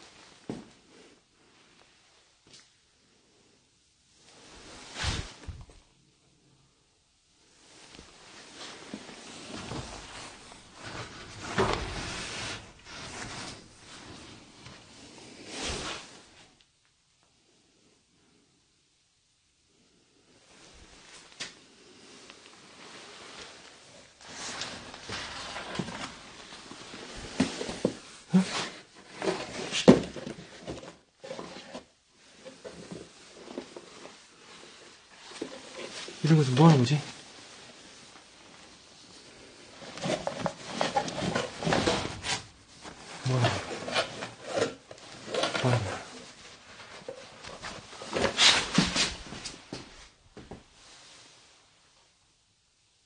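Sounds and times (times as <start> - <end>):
cardboard rustling and scraping: 4.8 - 5.8, 8.0 - 16.4, 22.8 - 51.3.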